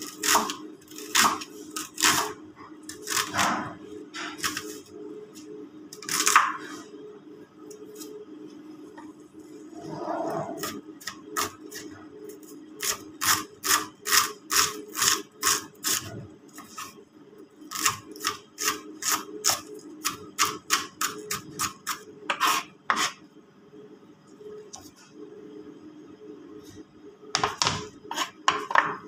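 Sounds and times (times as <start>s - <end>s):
knife chopping on cutting board: 0.2s - 1.4s.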